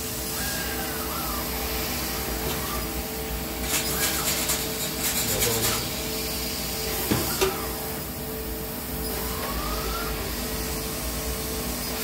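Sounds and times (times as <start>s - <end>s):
motor whine: 0.0s - 4.4s
laser cutter humming with hiss: 0.0s - 12.0s.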